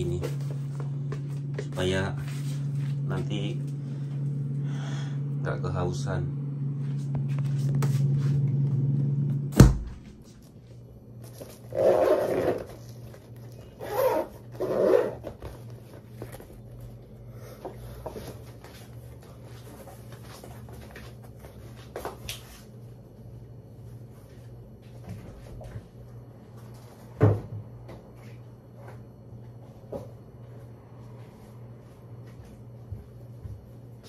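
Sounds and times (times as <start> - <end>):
refrigerator humming: 0.0 - 34.0
refrigerator door thud: 9.5 - 10.2.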